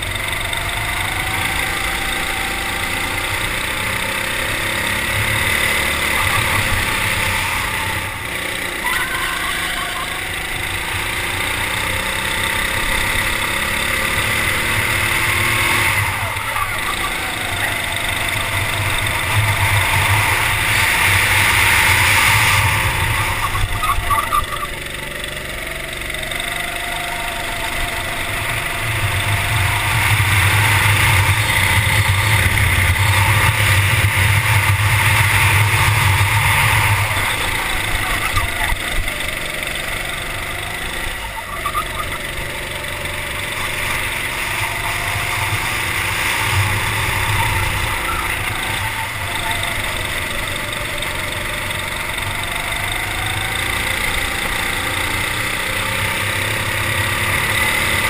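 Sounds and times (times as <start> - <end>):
go-kart engine revving: 0.0 - 58.0.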